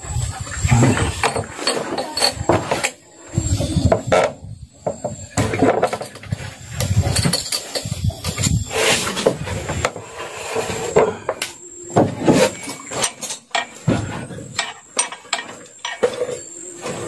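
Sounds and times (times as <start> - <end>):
metal tools clinking and knocking: 1.2 - 3.0, 4.0 - 8.5, 12.4 - 17.0.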